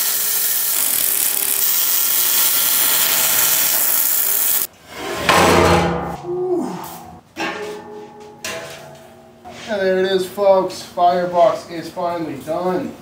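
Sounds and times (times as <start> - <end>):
welding arc crackling hiss: 0.0 - 4.7.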